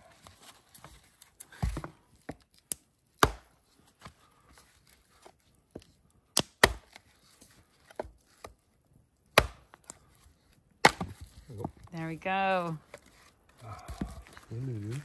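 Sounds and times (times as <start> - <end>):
hatchet chopping wood: 3.2 - 3.6, 6.4 - 7.0, 9.3 - 9.9, 10.8 - 11.3.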